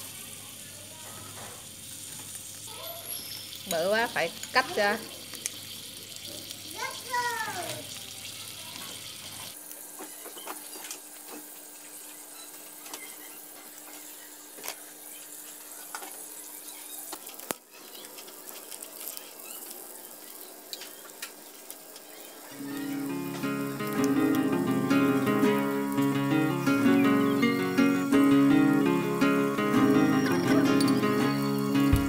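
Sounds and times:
scallops sizzling on a grill: 0.0 - 32.0
small crackles and pops: 2.1 - 6.6, 8.7 - 24.6.

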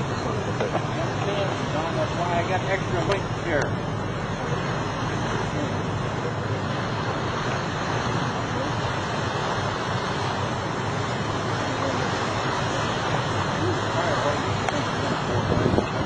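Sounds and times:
sea washing past hull: 0.0 - 16.0
wind on microphone: 12.3 - 16.0.

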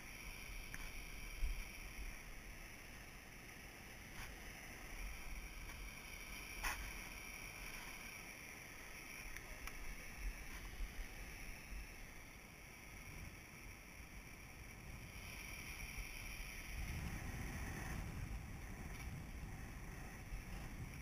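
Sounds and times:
wind on microphone: 14.9 - 21.0.

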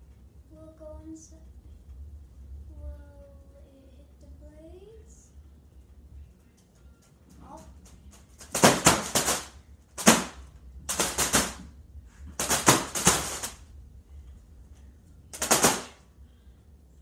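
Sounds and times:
ceiling fan humming: 0.0 - 17.0
fan blades slapping foil balloon: 6.6 - 13.7, 15.3 - 16.1.

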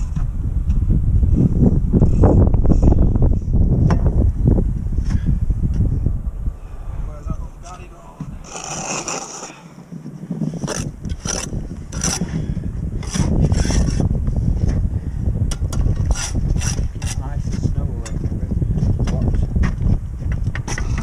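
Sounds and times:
low rumble: 0.0 - 21.0
trowel scraping mortar: 8.4 - 9.6, 10.5 - 12.4, 13.0 - 14.1, 15.9 - 17.2.

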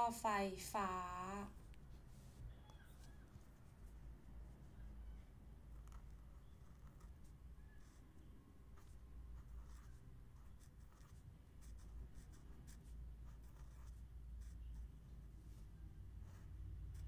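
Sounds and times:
low steady hum: 0.0 - 17.0
pen scratching on paper: 5.7 - 17.0.

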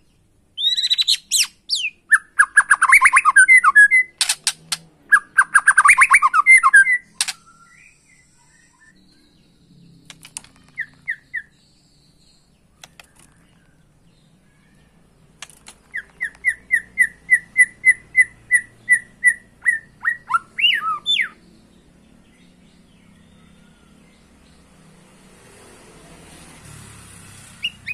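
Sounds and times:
bird singing whistled notes: 0.0 - 4.2, 5.1 - 14.3, 15.8 - 24.6, 27.6 - 27.9.

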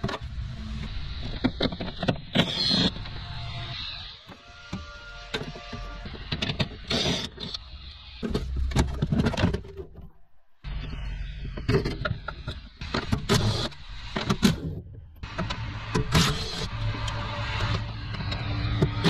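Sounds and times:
plastic and metal parts clattering: 8.2 - 10.2.

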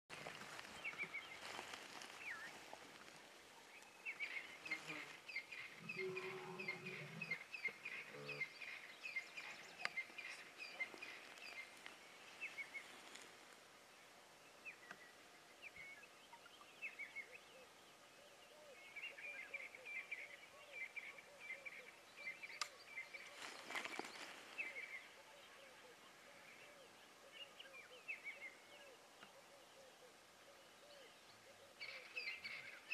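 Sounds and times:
birds chirping: 0.1 - 32.9.

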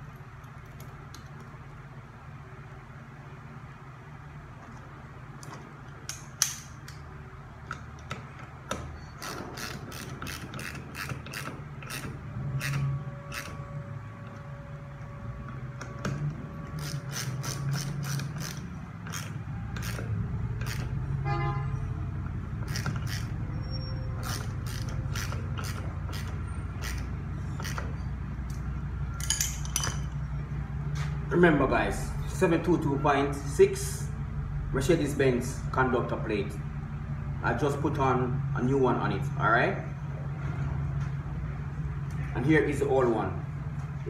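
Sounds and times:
hand ratchet clicking: 7.7 - 13.6, 16.8 - 20.9, 22.6 - 23.3, 24.2 - 27.9.

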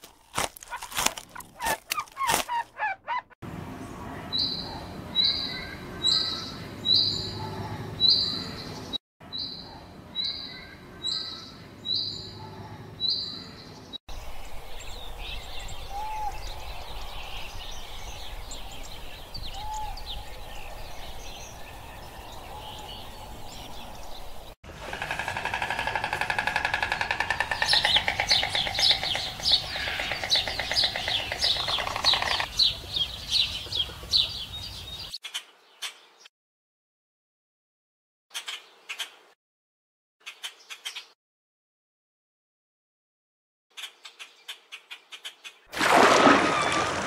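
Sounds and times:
birds chirping: 1.5 - 36.3.

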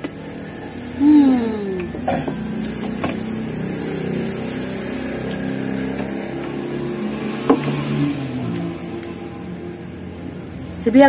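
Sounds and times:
engine running steadily: 0.0 - 11.0.

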